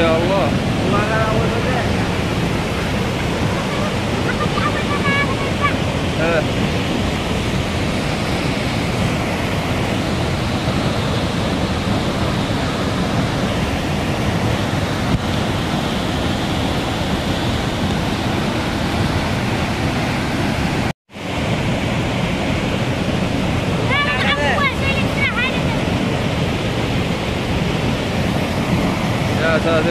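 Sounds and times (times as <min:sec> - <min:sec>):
water rushing over waterfall: 0:00.0 - 0:29.9.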